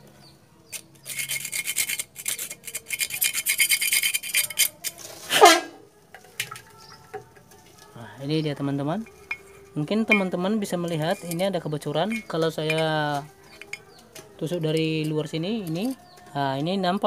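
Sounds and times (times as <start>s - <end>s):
screwdriver scraping rusted steel: 0.7s - 5.6s, 9.0s - 16.3s.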